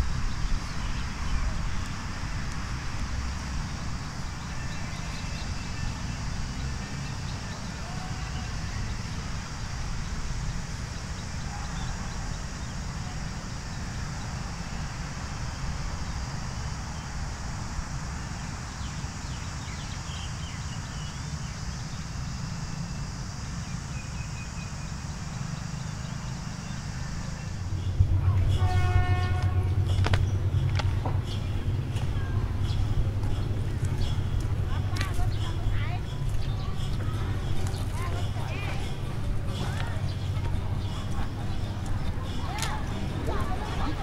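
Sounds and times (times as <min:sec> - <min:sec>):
heavy train engine rumble: 0:00.0 - 0:44.0
low rumble and hiss: 0:00.0 - 0:44.0
train horn: 0:28.4 - 0:29.9.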